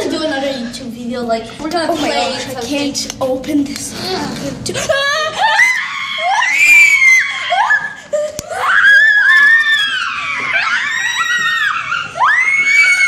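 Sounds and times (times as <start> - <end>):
girls screaming: 4.9 - 13.0.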